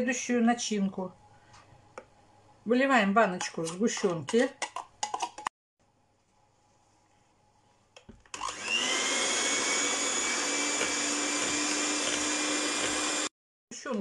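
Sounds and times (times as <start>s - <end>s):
electric hand mixer whine: 8.3s - 13.3s.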